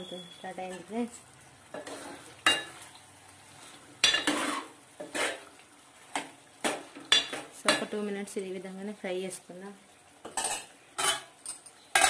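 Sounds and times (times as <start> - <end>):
spoon clinking and scraping pot: 1.8 - 2.7, 4.0 - 5.5, 6.6 - 7.9, 10.2 - 12.0.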